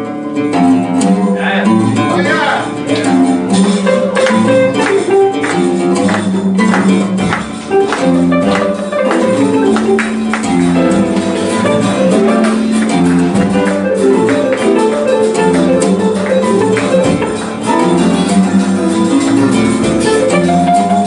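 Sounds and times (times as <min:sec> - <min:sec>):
live band playing: 0:00.0 - 0:21.0.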